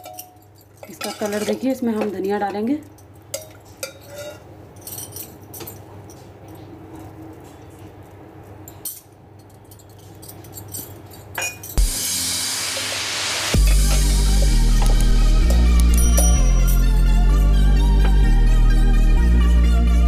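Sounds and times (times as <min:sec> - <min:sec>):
ladle clinking against metal pot: 0:00.0 - 0:04.5.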